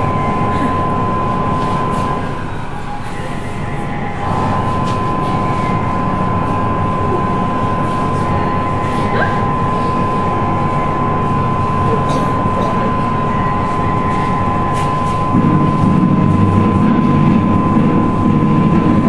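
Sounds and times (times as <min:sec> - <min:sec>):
high thin whine: 0:00.0 - 0:19.0
loud rushing noise: 0:13.4 - 0:19.0.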